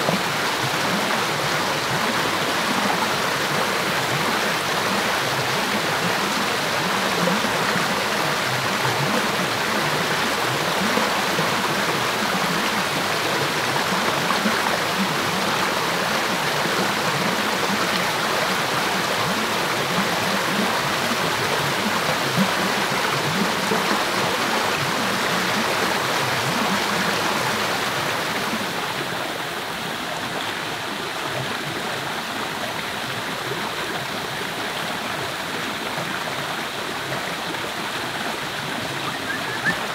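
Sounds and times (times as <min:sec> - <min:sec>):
stream rushing over boulders: 0:00.0 - 0:39.9.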